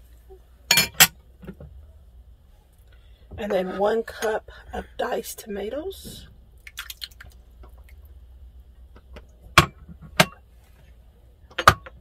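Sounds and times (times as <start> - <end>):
tomatoes splashing into broth: 6.6 - 8.0.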